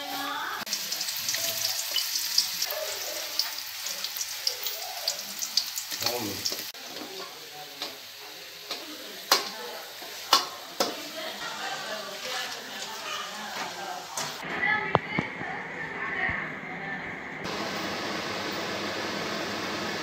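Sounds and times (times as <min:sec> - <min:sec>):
onions sizzling in oil: 0:00.0 - 0:14.4.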